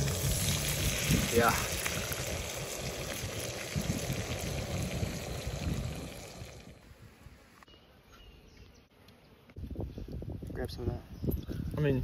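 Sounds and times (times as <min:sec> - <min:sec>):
fish sizzling in frying pan: 0:00.0 - 0:06.8.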